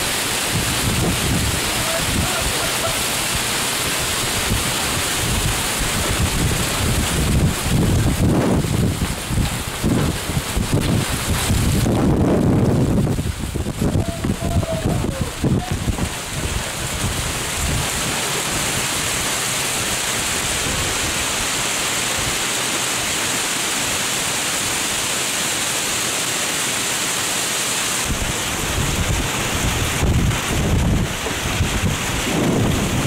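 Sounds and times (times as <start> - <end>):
wind buffeting microphone: 0.0 - 3.5, 4.2 - 19.2, 28.1 - 33.0
heavy rain pouring: 0.0 - 33.0.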